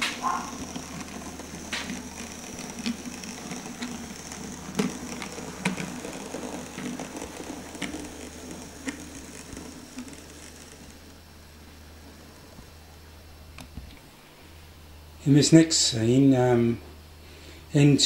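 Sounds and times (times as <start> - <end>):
irregular clicks: 0.0 - 11.0
model train motor whirr: 0.0 - 12.8.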